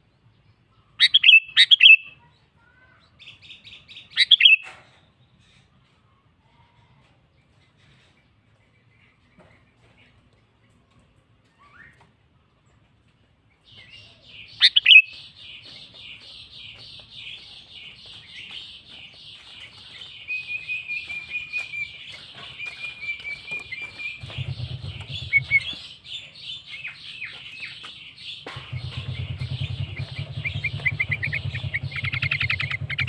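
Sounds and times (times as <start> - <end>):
bird chattering: 1.0 - 2.3, 3.2 - 4.7, 14.2 - 33.0
low rumble: 23.4 - 26.2, 28.5 - 33.0.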